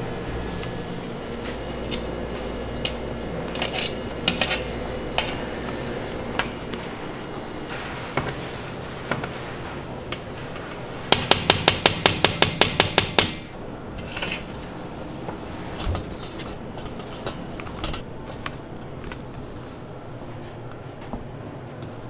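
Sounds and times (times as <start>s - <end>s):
spatula mixing cream in metal bowl: 1.4s - 9.5s.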